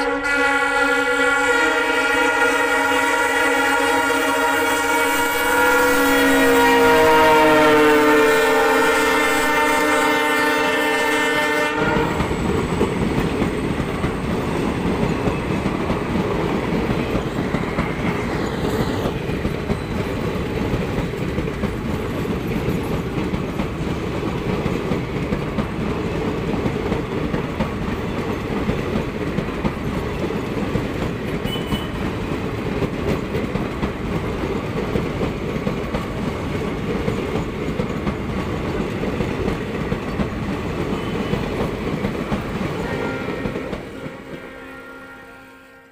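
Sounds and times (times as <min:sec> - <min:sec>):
locomotive horn: 0:00.0 - 0:12.3, 0:31.4 - 0:32.1, 0:42.7 - 0:45.9
train coaches rumbling past: 0:00.0 - 0:45.9.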